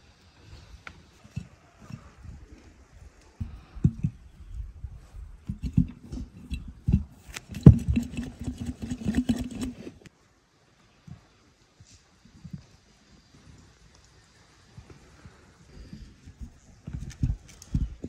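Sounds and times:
hand rubbing tomatoes in jar: 5.1s - 10.0s.

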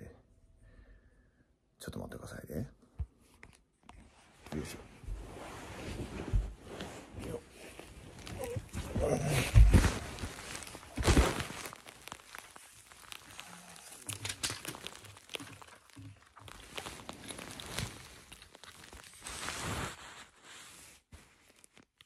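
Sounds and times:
clothing brushing on microphone: 4.0s - 9.0s, 16.6s - 21.8s
small clicks and crinkles: 5.9s - 22.0s.

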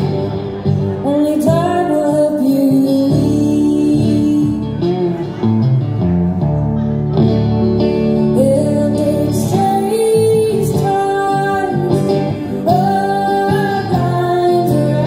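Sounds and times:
guitar accompaniment: 0.0s - 15.0s
woman singing slow melody: 1.0s - 5.0s, 8.2s - 15.0s.

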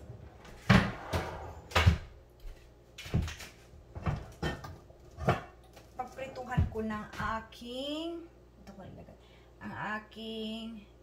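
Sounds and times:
kitchen clunks and knocks: 0.0s - 2.2s, 3.0s - 5.6s.

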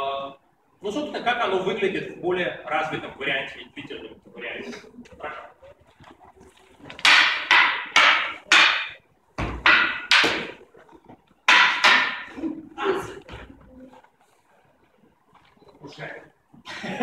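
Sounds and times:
wooden sticks clacking: 5.0s - 12.5s.

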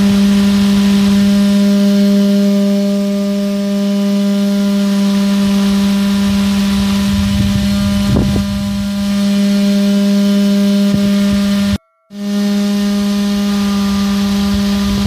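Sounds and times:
small motor humming: 0.0s - 15.0s.

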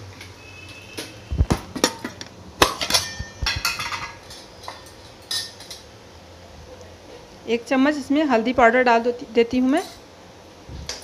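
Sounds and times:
metal spoon clinking on containers: 1.8s - 5.9s.

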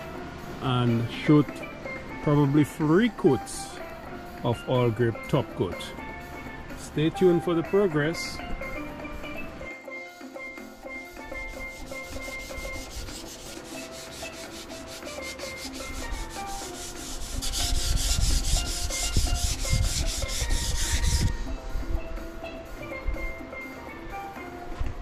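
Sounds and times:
hand sanding strokes on metal: 10.2s - 21.9s.

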